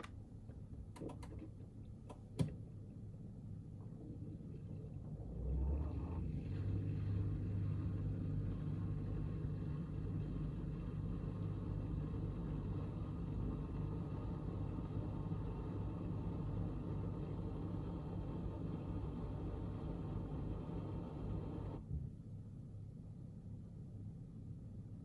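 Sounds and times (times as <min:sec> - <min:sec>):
dishwasher pump humming: 0:03.8 - 0:21.8.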